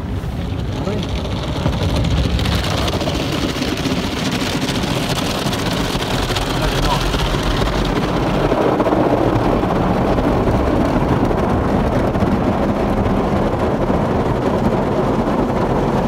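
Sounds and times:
car wash water spray: 0.0 - 8.1.

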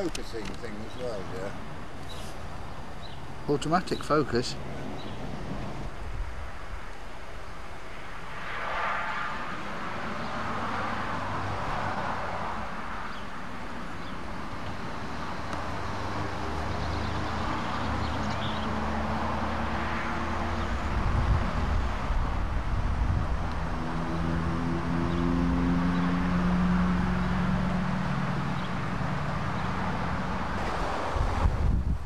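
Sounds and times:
outdoor hiss: 0.0 - 9.0.

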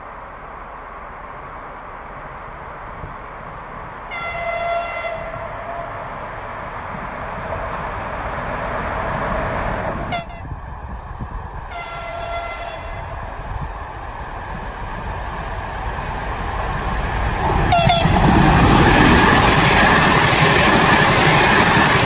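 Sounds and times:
train coaches rolling past: 0.0 - 22.0
locomotive horn blast: 4.1 - 6.0, 10.1 - 10.5, 11.7 - 13.1, 17.7 - 18.2.

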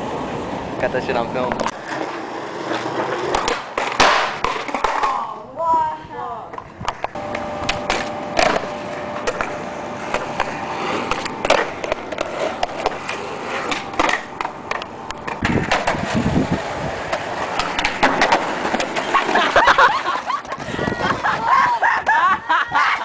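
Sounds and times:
skateboard wheels rolling on concrete: 0.0 - 23.0
skateboard clacking on ground: 1.4 - 5.8, 6.4 - 19.6.

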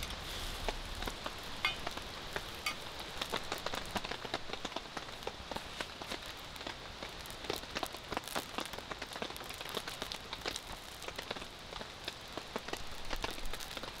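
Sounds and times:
skillet sizzling in oil: 0.0 - 4.6
crackling wood fire: 0.0 - 14.0.

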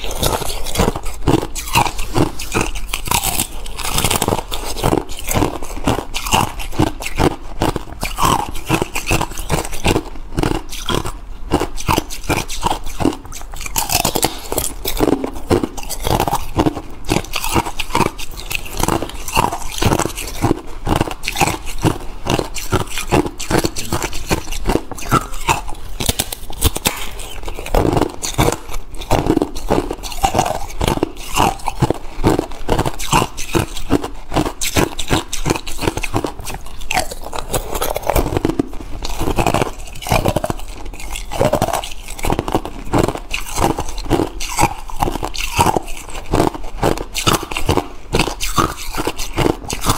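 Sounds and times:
ice crunching being chewed: 0.0 - 49.9.

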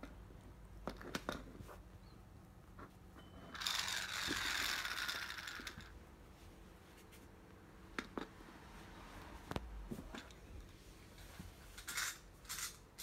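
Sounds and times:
toy mouse gears whirring: 3.5 - 5.9, 11.8 - 13.0.

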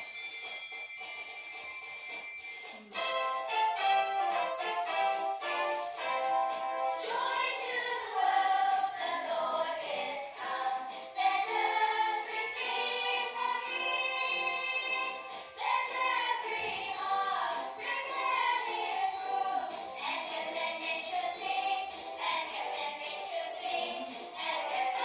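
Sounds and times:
voices singing together: 6.2 - 25.0.

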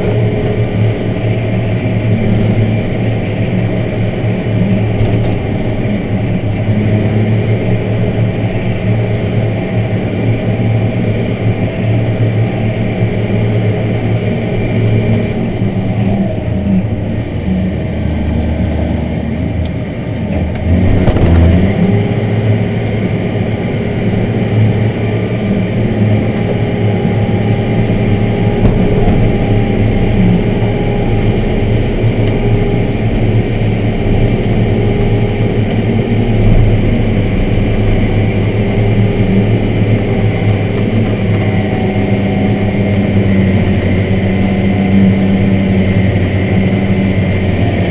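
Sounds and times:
tractor diesel engine running: 0.0 - 47.9.

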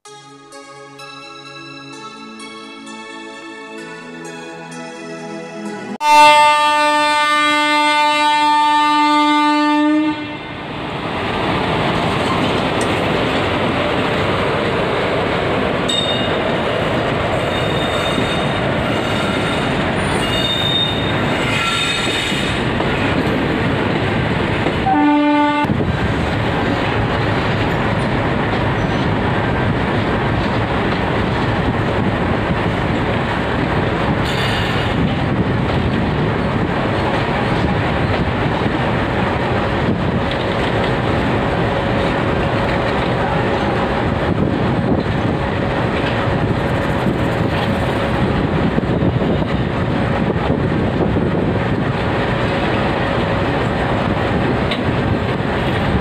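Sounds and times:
horn-like tone: 6.0 - 10.6, 24.8 - 25.7
train wheels rumbling and clattering: 10.6 - 56.0
wheels squealing: 17.4 - 23.2.

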